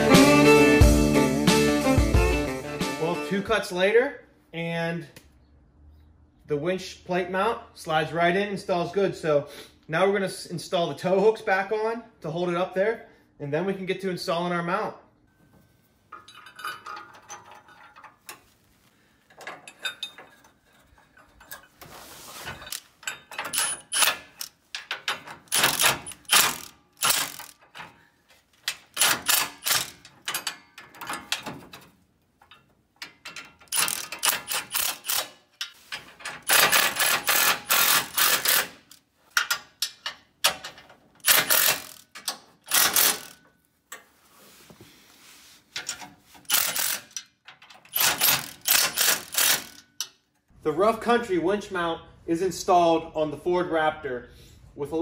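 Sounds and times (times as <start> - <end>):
impact wrench hammering: 22.7 - 27.9, 28.7 - 31.6, 33.1 - 35.4, 36.1 - 43.4, 46.5 - 50.1.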